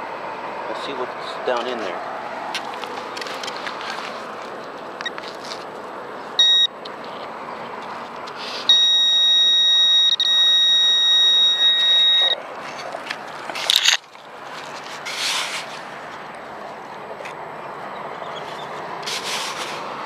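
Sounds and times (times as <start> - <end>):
metal detector beep tone: 6.4 - 6.8, 8.7 - 12.4
digging in sand: 12.4 - 16.3, 18.4 - 20.0.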